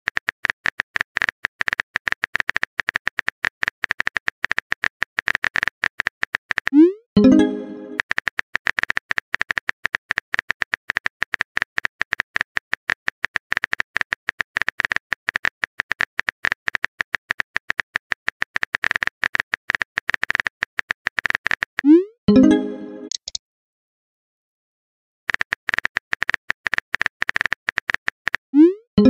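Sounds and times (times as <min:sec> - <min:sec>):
phone keyboard typing taps: 0:23.0 - 0:23.4.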